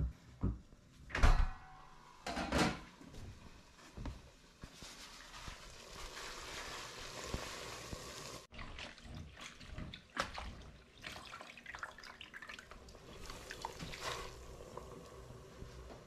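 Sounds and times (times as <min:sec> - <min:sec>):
water dripping and splashing: 0:05.2 - 0:15.1.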